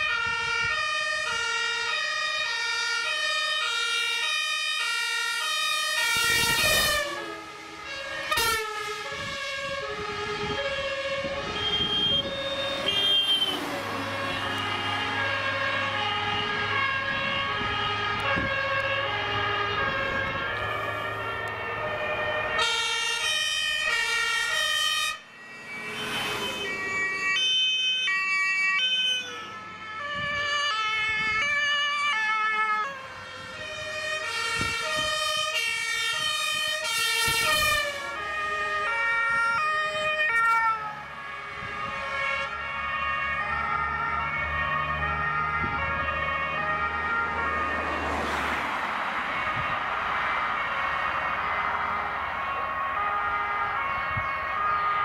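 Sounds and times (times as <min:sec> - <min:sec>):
two-tone emergency sirens: 0:00.0 - 0:55.0
diesel engine humming: 0:09.8 - 0:29.9, 0:40.8 - 0:55.0.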